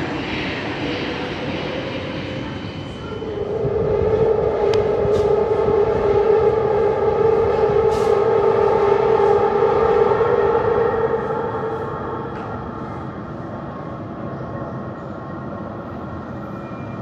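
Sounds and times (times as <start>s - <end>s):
low rumble: 0.0s - 13.4s
train in tunnel whining: 0.0s - 17.0s.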